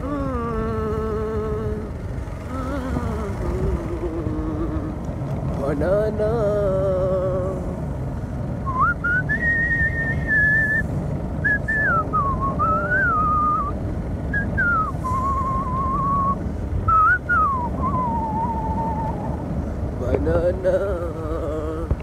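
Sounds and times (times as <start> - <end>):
steady low rumble: 0.0 - 22.0
man whistling a tune: 8.6 - 19.3.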